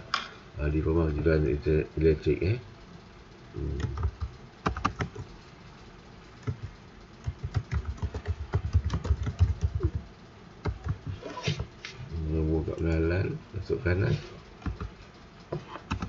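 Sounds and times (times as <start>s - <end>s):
computer keyboard typing: 3.6s - 5.3s, 6.4s - 10.0s, 10.6s - 11.2s, 14.6s - 14.9s.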